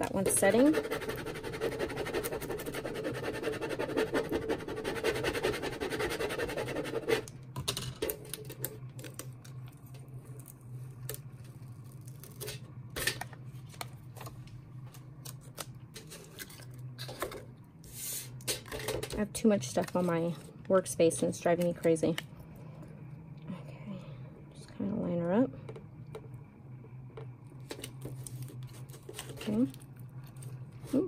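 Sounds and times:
low steady hum: 0:00.0 - 0:31.0
plastic scraper rubbing on tape: 0:00.6 - 0:07.3
tape peeling crackles: 0:09.1 - 0:12.6.

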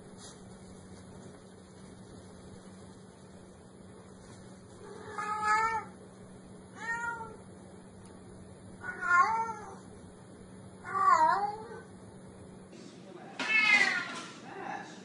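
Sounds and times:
cat meowing: 0:04.9 - 0:06.0, 0:06.8 - 0:07.4, 0:08.8 - 0:09.8, 0:10.8 - 0:11.9, 0:13.4 - 0:14.2.

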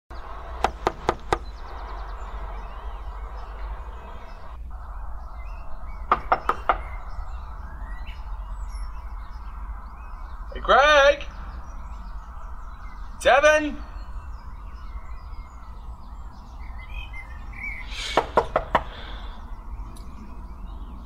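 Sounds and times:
faint birds chirping: 0:00.1 - 0:21.0
knocking on a door: 0:06.1 - 0:06.9, 0:18.2 - 0:18.9.

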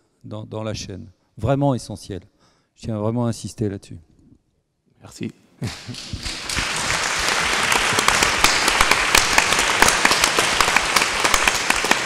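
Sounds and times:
audience applause: 0:05.6 - 0:12.0.

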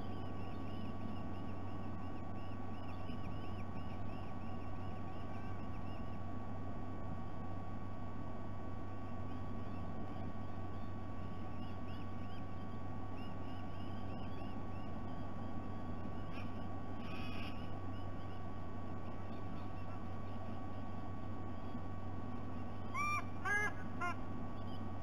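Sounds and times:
small birds chirping: 0:00.0 - 0:07.5, 0:08.8 - 0:25.0
steady low hum: 0:00.0 - 0:25.0
sea eagle honking calls: 0:22.9 - 0:24.2.

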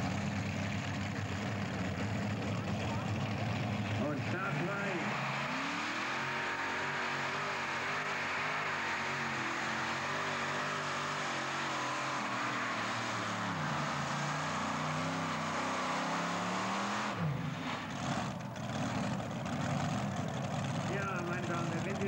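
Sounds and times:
tractor engine at high revs: 0:00.0 - 0:22.0.

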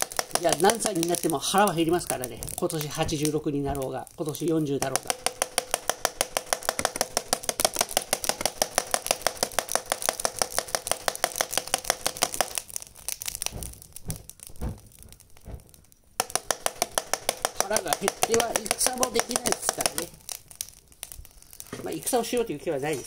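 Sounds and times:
soft knocks: 0:13.5 - 0:15.8
rapid mechanical ticking: 0:16.2 - 0:20.3.

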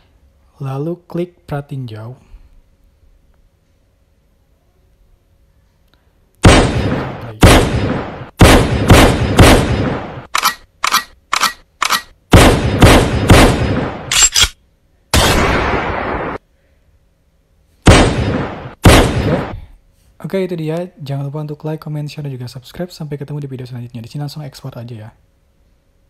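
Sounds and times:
loud sharp hits: 0:17.9 - 0:19.7.

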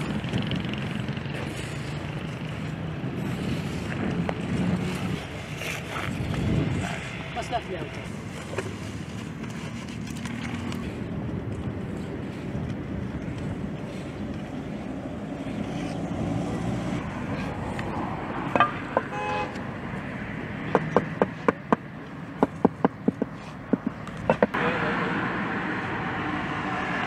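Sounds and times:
traffic noise: 0:00.0 - 0:27.0
car horn toot: 0:18.6 - 0:19.6.

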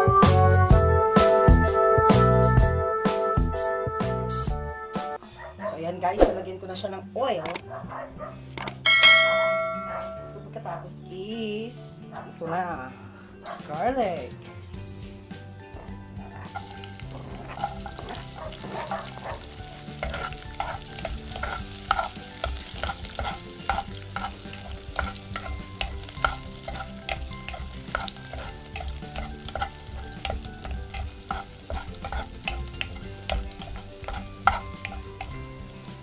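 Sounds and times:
metal spoon scraping pot: 0:16.4 - 0:36.0
garlic sizzling in oil: 0:16.5 - 0:36.0.

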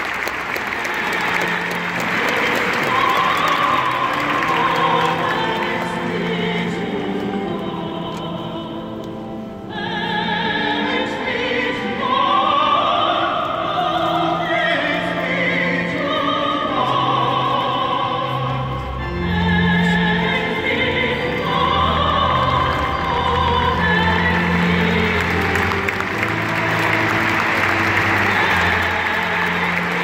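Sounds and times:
voices singing held notes: 0:00.1 - 0:30.0
instrumental accompaniment: 0:18.4 - 0:30.0.

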